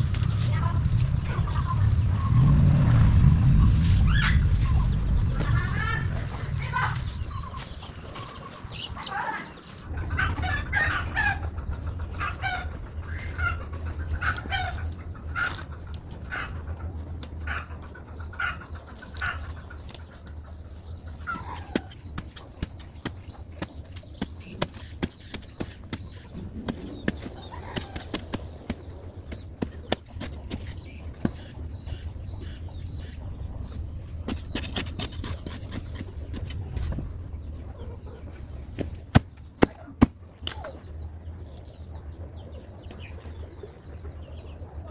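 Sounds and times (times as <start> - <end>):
chickens clucking: 6.2 - 40.8
hoe digging into dry soil: 34.2 - 37.0.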